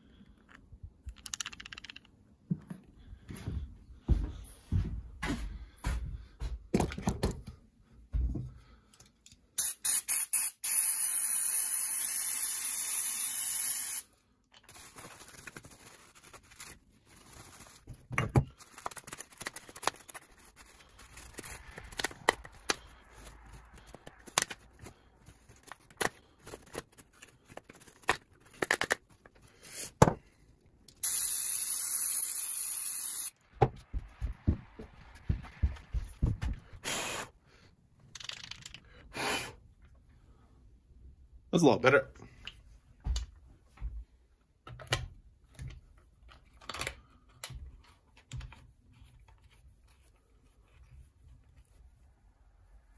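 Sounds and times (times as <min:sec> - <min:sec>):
handling rustles and clicks: 0:00.2 - 0:02.9, 0:14.4 - 0:29.5, 0:38.0 - 0:38.9
aerosol spray hissing: 0:09.6 - 0:14.1, 0:31.0 - 0:33.3.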